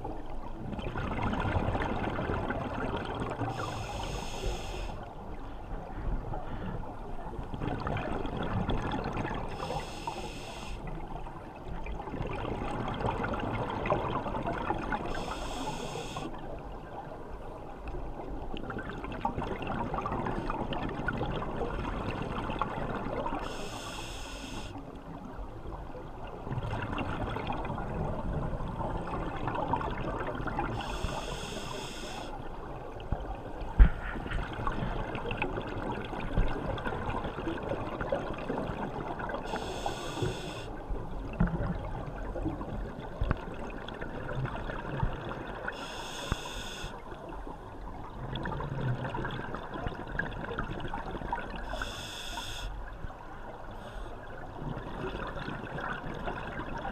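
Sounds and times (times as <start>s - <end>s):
regulator inhalation hiss: 3.5s - 5.0s, 9.6s - 10.8s, 15.1s - 16.3s, 23.4s - 24.8s, 30.8s - 32.3s, 39.5s - 40.7s, 45.8s - 47.0s, 51.7s - 52.8s.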